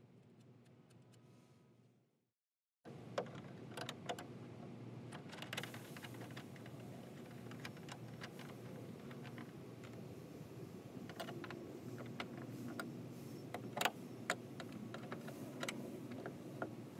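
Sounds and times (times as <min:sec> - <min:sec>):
steady background noise: 0:02.9 - 0:16.9.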